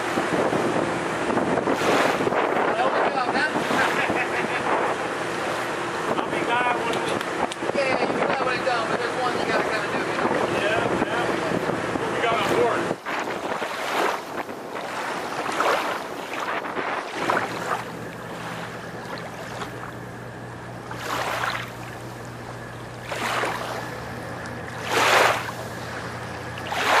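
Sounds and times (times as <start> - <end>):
wind on microphone: 0.0 - 20.0
steady low hum: 0.0 - 27.0
water rushing past hull: 0.0 - 27.0.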